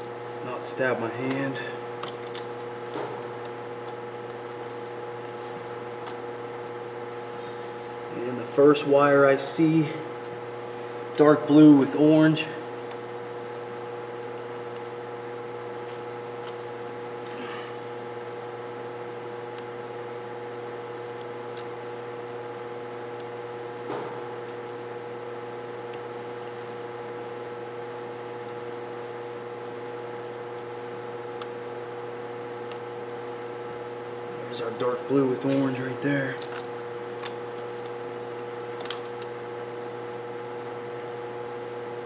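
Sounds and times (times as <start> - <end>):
steady hum: 0.0 - 42.0
tape picking ticks and rustles: 0.8 - 6.8, 12.8 - 13.8, 14.7 - 17.4, 21.0 - 21.8, 23.1 - 29.2, 32.5 - 39.6.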